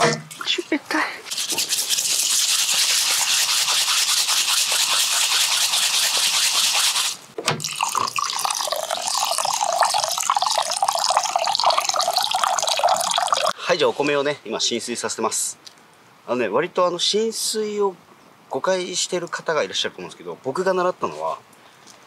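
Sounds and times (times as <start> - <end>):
rice grains swishing in water: 1.3 - 7.3
water pouring into pot: 7.6 - 13.6.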